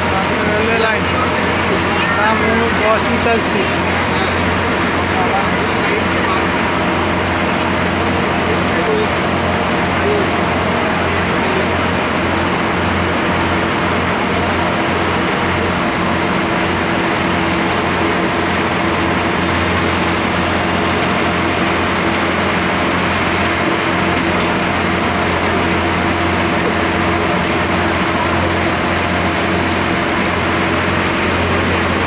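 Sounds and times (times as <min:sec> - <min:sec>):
rain hissing: 0:00.0 - 0:13.4
motorboat engine droning: 0:00.0 - 0:32.0.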